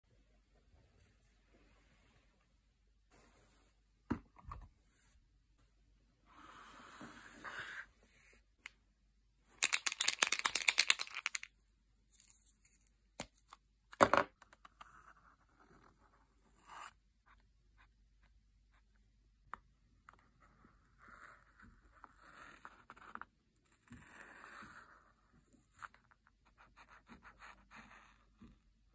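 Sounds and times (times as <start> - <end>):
paint marker ball rattling: 9.6 - 11.5.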